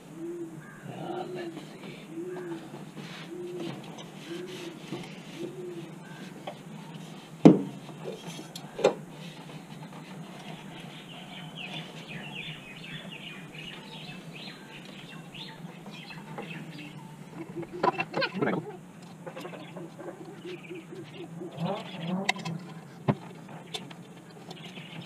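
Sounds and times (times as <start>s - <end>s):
small birds chirping: 0.0s - 25.0s
sharp knocks in engine bay: 7.4s - 7.8s.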